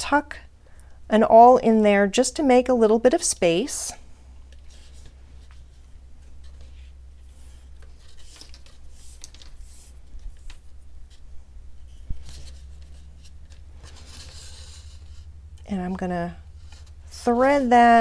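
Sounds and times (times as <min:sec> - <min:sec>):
steady low hum: 0:00.0 - 0:18.0
scratching and rubbing on gourd: 0:04.6 - 0:18.0.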